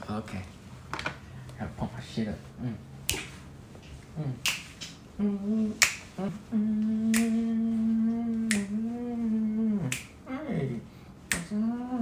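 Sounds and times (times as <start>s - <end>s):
man humming low notes: 2.6s - 2.9s, 4.0s - 4.5s, 5.1s - 12.0s
finger snaps: 3.0s - 3.4s, 4.4s - 5.0s, 5.8s - 6.2s, 6.8s - 7.5s, 8.3s - 8.8s, 9.8s - 10.2s, 11.3s - 11.6s.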